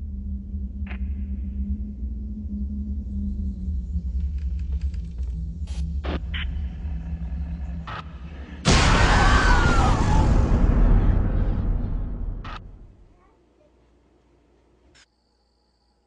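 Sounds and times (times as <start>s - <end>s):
low drone: 0.0s - 13.1s
loud burst of noise: 7.9s - 13.0s.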